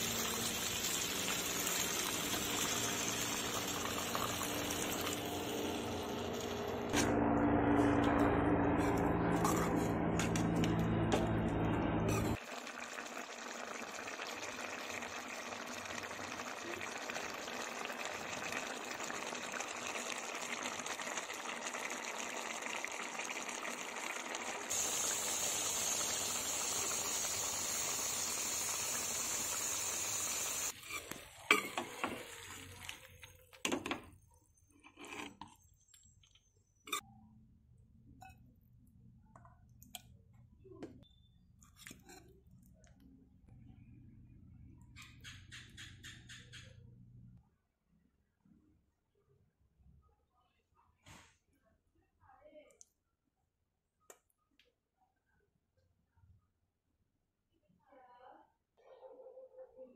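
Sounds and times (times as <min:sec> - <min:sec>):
curry bubbling in a wok: 0:12.3 - 0:33.3.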